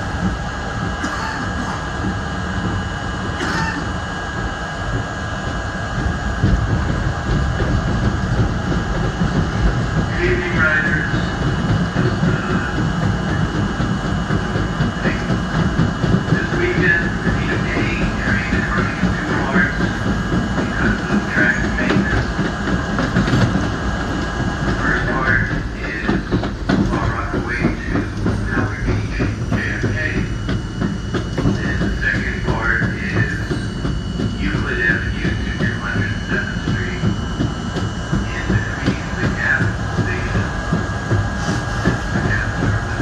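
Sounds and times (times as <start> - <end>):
high motor whine: 0.0 - 43.0
subway wheels rumbling on rail: 0.0 - 43.0
low thumps: 4.0 - 43.0.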